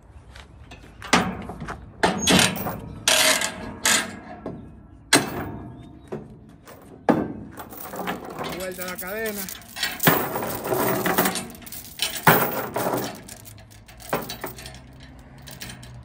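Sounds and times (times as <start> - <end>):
chain rattling on wooden deck: 2.0 - 4.2, 6.5 - 16.0
metal clanks of load binder: 6.7 - 16.0.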